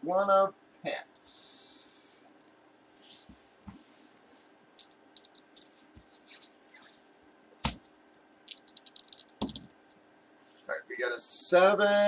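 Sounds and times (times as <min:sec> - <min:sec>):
dice clattering on a table: 0:04.8 - 0:05.7, 0:08.5 - 0:09.8
dice rattling in a hand: 0:04.8 - 0:05.7, 0:08.5 - 0:09.8.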